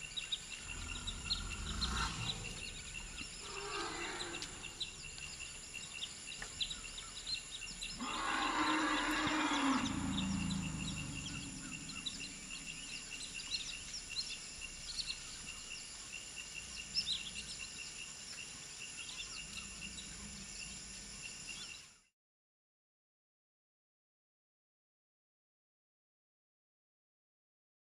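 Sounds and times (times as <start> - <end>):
birds chirping: 0.0 - 22.1
insects chirping: 0.0 - 22.1
elephant calling: 0.6 - 5.1, 7.9 - 13.9.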